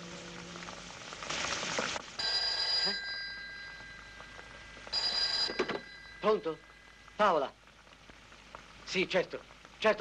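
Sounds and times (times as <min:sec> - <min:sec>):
telephone bell ringing: 0:02.2 - 0:06.4.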